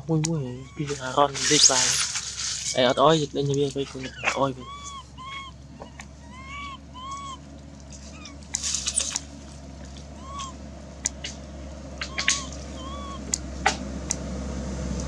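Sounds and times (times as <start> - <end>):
infant monkey coo calls: 0.0 - 13.5
scratchy noise: 0.8 - 3.0.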